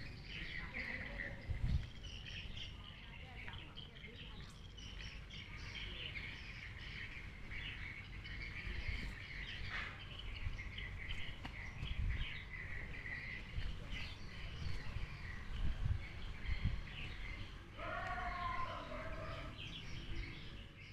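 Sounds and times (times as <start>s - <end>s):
small birds chirping: 0.0s - 20.9s.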